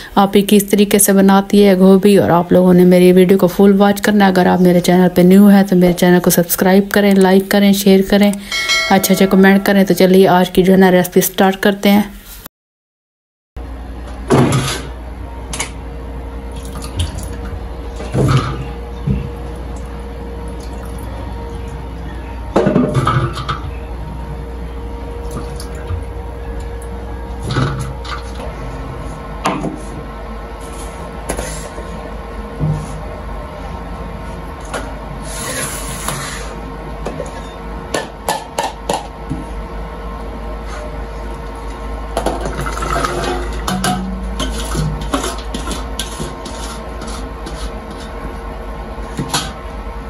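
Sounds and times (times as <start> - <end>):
metal kitchenware clinking: 8.4 - 10.0.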